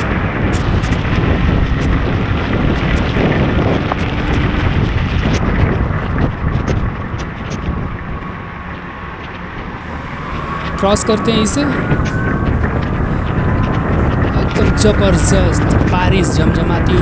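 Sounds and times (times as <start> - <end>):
tyres on wet road: 0.0 - 17.0
wind buffeting microphone: 0.0 - 17.0
rain hissing: 9.8 - 15.9.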